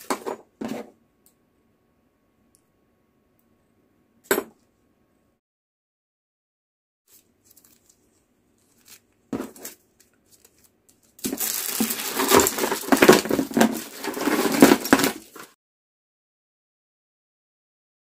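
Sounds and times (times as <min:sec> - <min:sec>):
packaging rustling into cardboard box: 0:08.6 - 0:15.6
plastic items clicking: 0:08.7 - 0:15.5.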